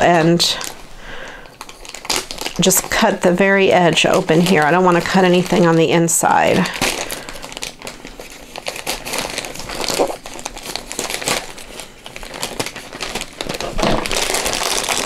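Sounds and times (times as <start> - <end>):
plastic mailer crinkling: 0.0 - 15.0
scissors cutting plastic: 1.4 - 15.0.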